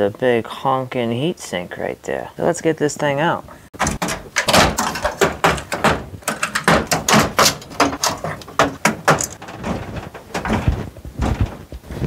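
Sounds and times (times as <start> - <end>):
plastic connectors clicking and rattling: 3.8 - 10.8.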